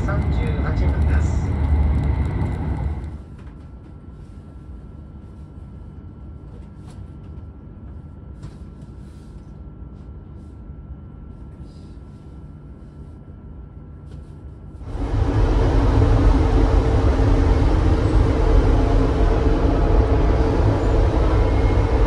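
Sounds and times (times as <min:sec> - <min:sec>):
train cabin rumble and hum: 0:00.0 - 0:22.0.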